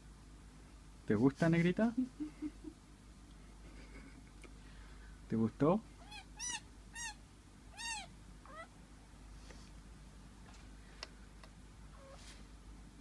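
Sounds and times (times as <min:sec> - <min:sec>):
chinchillas squeaking: 0:06.0 - 0:08.7.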